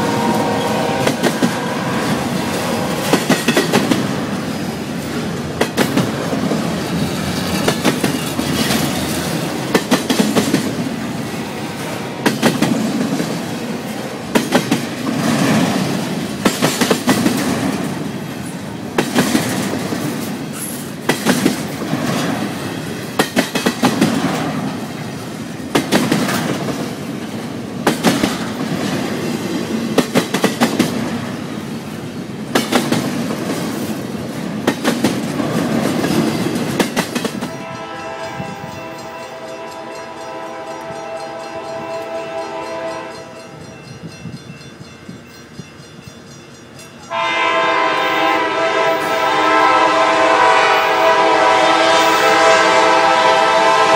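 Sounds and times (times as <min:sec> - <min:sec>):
freight train rumbling past: 0:00.0 - 0:53.9
train wheel clicks: 0:02.6 - 0:04.1, 0:05.3 - 0:10.8, 0:14.3 - 0:15.2, 0:16.4 - 0:18.0, 0:19.0 - 0:22.4, 0:23.1 - 0:24.5, 0:30.0 - 0:31.1, 0:34.6 - 0:37.6.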